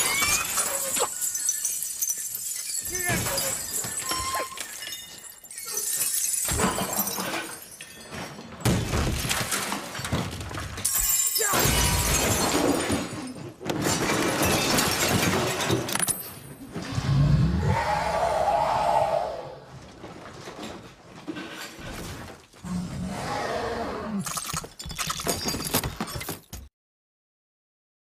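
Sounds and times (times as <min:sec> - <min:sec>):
glass shattering: 0:00.0 - 0:16.6, 0:24.2 - 0:26.7.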